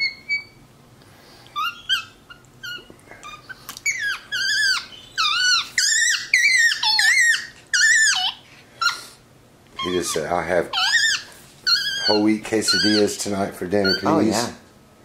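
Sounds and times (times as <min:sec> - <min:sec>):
monkey squeaky calls: 0:00.0 - 0:00.6, 0:01.6 - 0:09.0, 0:09.8 - 0:13.2, 0:13.8 - 0:14.4.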